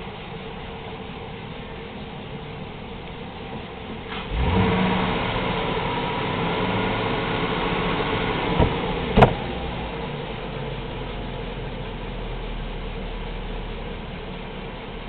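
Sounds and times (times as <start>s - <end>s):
car engine revving: 1.7s - 13.7s.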